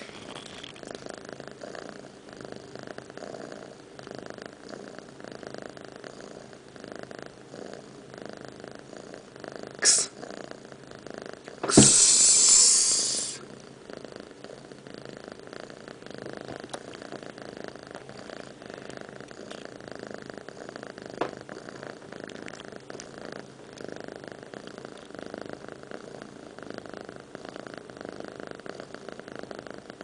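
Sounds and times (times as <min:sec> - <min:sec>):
cat purring: 0:00.0 - 0:30.0
cat rasping noise: 0:11.6 - 0:13.4.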